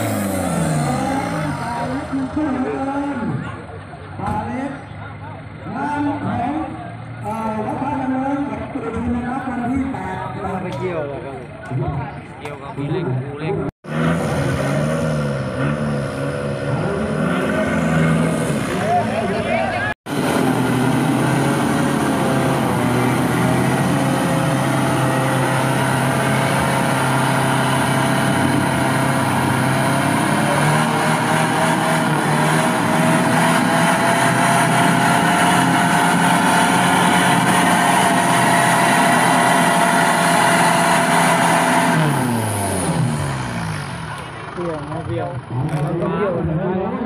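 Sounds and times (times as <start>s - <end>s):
truck engine revving under load: 0.0s - 4.4s, 13.6s - 46.5s.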